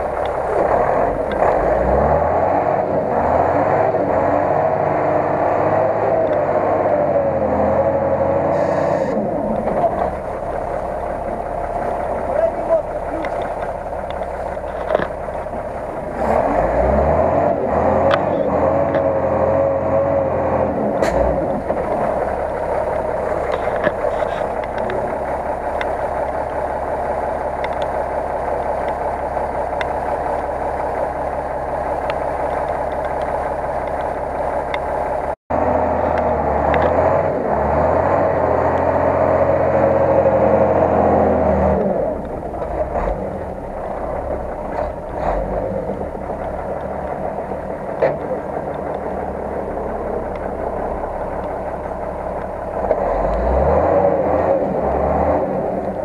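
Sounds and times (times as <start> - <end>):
truck engine running: 0.0 - 56.0.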